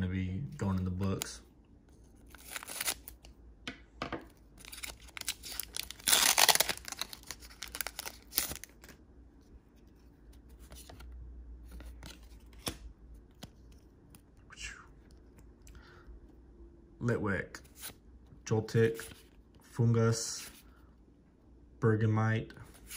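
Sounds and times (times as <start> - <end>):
foil wrapper ripping: 4.6 - 8.8
foil wrapper crinkling: 4.6 - 8.9.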